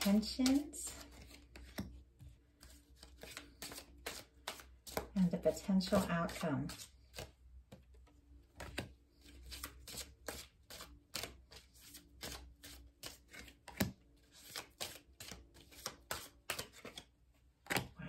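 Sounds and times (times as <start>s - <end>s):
cards being shuffled: 0.0s - 18.0s
card clicks and taps: 0.1s - 2.0s, 7.1s - 8.9s, 14.8s - 17.9s.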